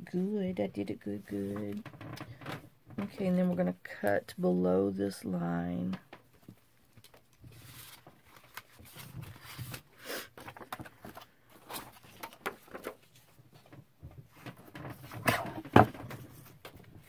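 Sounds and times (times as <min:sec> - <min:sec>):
paper rustling: 0:07.0 - 0:13.4.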